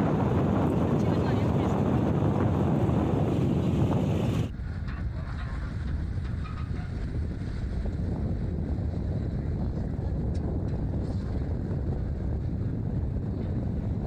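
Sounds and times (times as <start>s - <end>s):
vehicle road noise: 0.0s - 14.0s
wind rushing over microphone: 0.0s - 14.0s.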